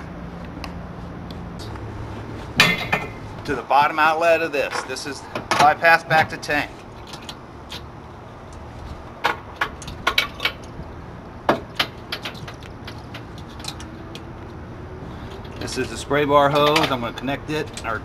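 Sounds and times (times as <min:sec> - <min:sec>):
low background hum: 0:00.0 - 0:18.0
metallic clicks of hose fittings: 0:11.7 - 0:14.5.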